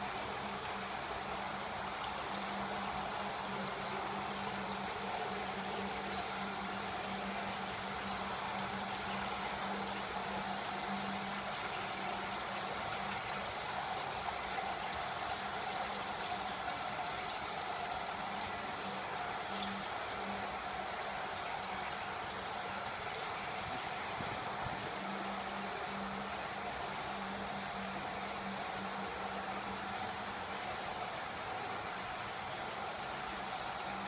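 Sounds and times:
water trickling into gutter: 0:00.0 - 0:34.0.

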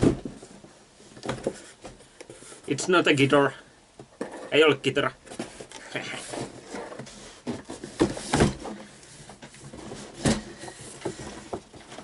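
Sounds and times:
dull thuds: 0:00.0 - 0:00.5
cardboard rustling and scraping: 0:00.0 - 0:02.9, 0:04.2 - 0:12.0.

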